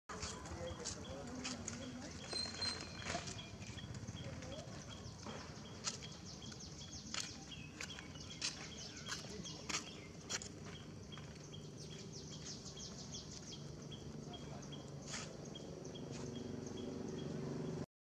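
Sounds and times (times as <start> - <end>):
small birds chirping: 0.1 - 17.8.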